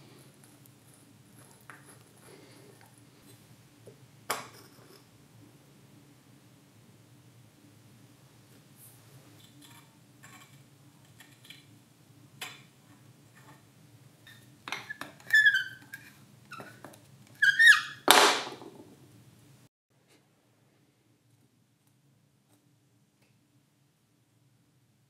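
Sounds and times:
squeaks of rusted metal: 14.2 - 16.8, 17.4 - 18.0.

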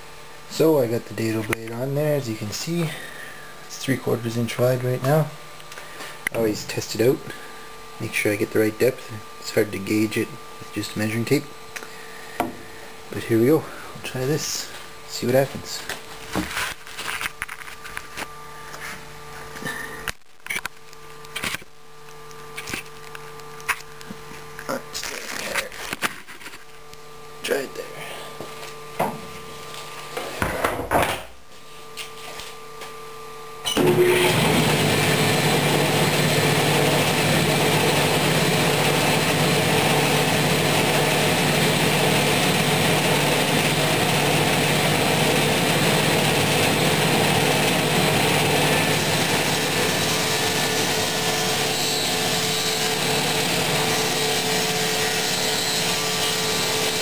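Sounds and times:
table saw whirring: 33.7 - 57.0.

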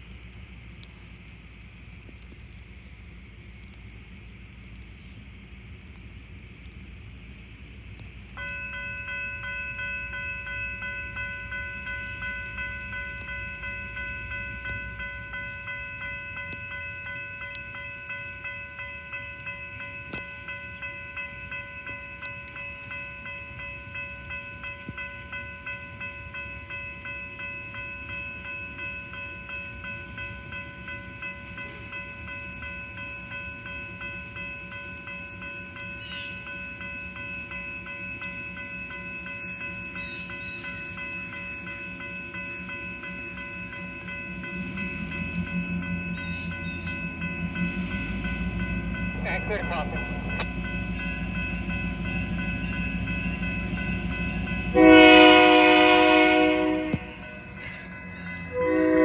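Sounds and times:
diesel locomotive rumble: 0.0 - 59.0
railroad warning bell ringing: 8.3 - 59.0.

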